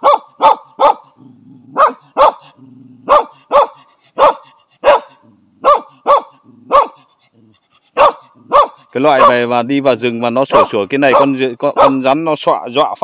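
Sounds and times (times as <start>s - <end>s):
dog barking sharply: 0.0s - 1.0s, 1.8s - 2.4s, 3.1s - 7.0s, 10.5s - 12.0s.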